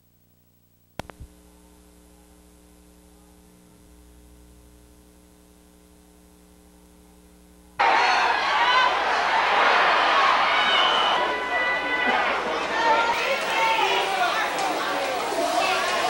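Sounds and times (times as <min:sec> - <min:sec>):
faint mains hum: 0:00.0 - 0:16.0
sharp clicks: 0:00.9 - 0:01.3.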